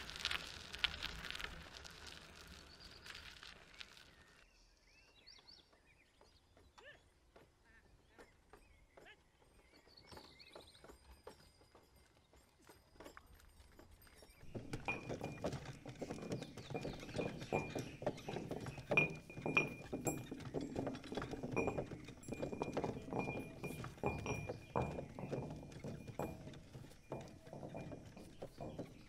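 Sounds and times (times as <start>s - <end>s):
hooves clopping: 0.0s - 4.4s, 5.0s - 29.0s
wooden cart wheels rattling: 0.0s - 4.4s, 5.0s - 29.0s.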